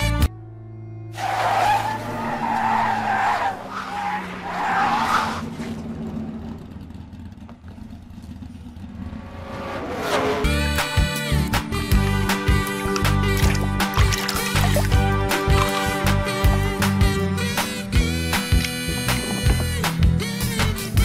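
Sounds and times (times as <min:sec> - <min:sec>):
tyre squeal: 0:01.2 - 0:05.5.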